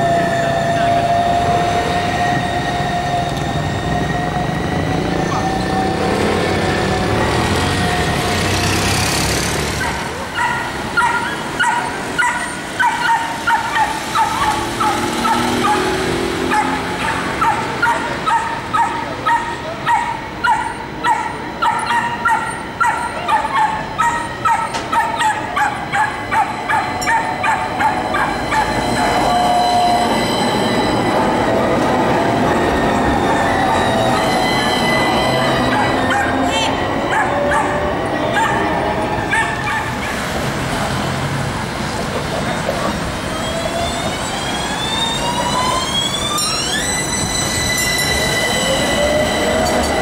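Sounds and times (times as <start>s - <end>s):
street noise: 0.0s - 50.0s
tram wheels squealing: 0.0s - 50.0s
dog barking: 9.8s - 28.7s, 35.7s - 38.7s, 39.3s - 40.2s.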